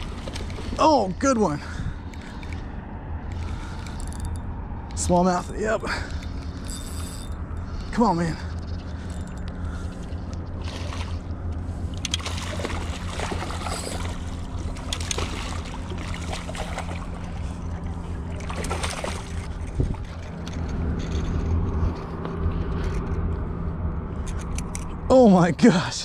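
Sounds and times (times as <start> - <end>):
steady low hum: 0.0 - 26.0
fish splashing at water surface: 12.0 - 20.2.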